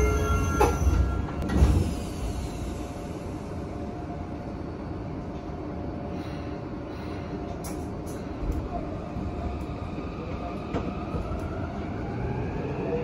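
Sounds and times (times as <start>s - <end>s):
subway door chime: 0.0s - 3.3s
train car low hum: 0.0s - 13.0s.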